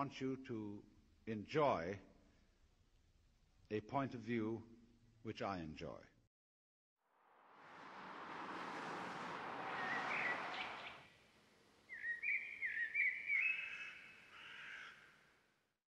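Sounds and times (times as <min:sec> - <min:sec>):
steady noise: 0:07.1 - 0:11.7
bird calling: 0:09.6 - 0:11.1, 0:11.9 - 0:15.1.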